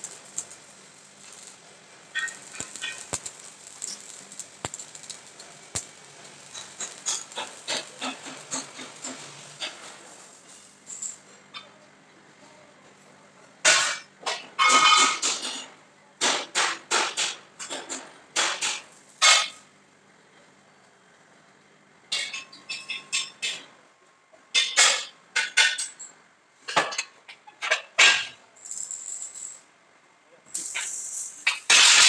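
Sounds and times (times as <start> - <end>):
metal-on-metal clanks: 0.0 - 11.2, 30.6 - 32.0.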